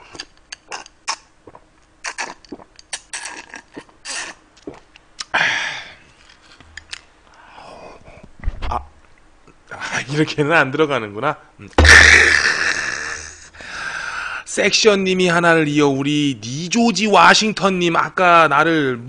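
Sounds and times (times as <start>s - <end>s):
slurping and chewing: 0.0s - 5.3s
loud breathy burst: 13.1s - 14.4s.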